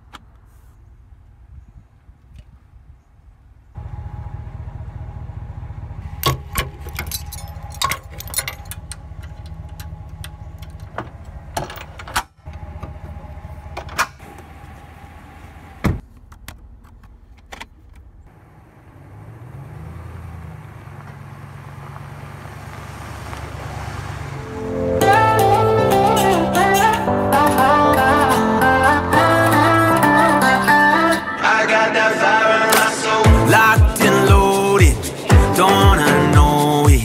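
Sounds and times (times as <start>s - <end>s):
pickup truck engine idling: 3.8s - 11.6s, 12.5s - 26.9s
metallic clinks and clicks: 6.6s - 10.9s.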